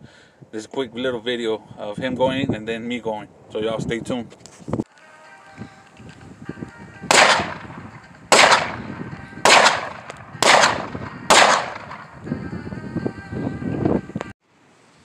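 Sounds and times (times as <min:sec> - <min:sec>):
handgun shots echoing: 0:07.1 - 0:12.1.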